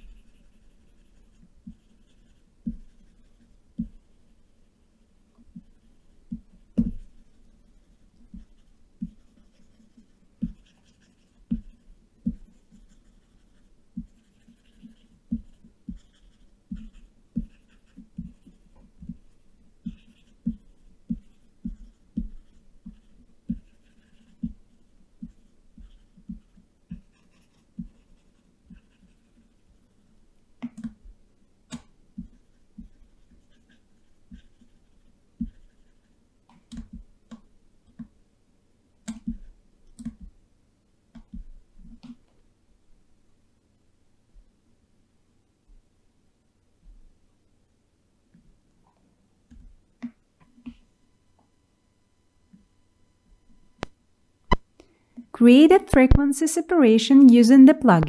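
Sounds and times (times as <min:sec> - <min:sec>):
computer mouse clicks: 0:39.9 - 0:40.3.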